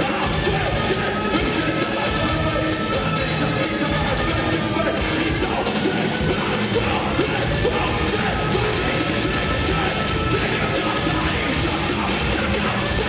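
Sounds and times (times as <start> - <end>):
heavy metal band playing live: 0.0 - 13.0.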